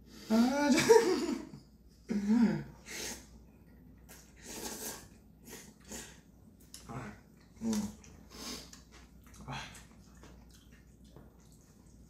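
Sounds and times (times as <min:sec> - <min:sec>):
man laughing: 0:00.5 - 0:01.6.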